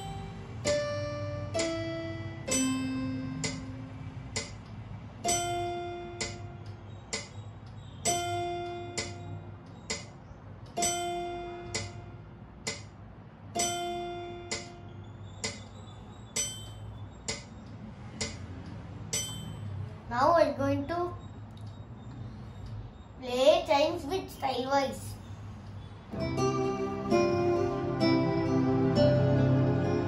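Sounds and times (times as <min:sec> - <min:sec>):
electronic keyboard chime note: 0:00.0 - 0:03.9, 0:08.0 - 0:09.4
metronome ticking: 0:00.0 - 0:19.8.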